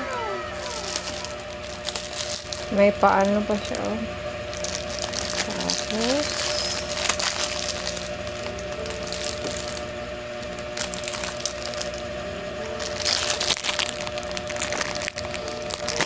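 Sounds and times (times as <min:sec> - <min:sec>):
plastic bag crinkling and tearing: 0:00.1 - 0:12.0, 0:12.8 - 0:16.0.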